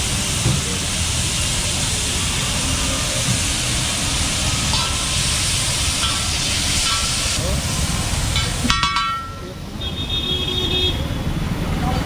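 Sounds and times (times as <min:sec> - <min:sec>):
chicken and onions sizzling: 0:00.0 - 0:08.7.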